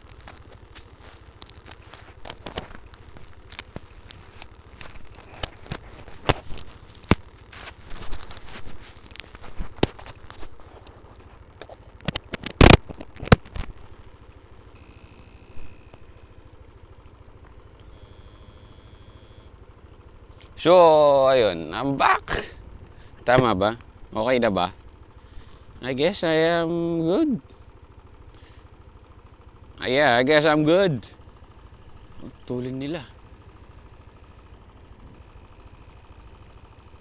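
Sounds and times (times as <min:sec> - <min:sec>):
microphone rustling and scraping: 0:00.0 - 0:13.9.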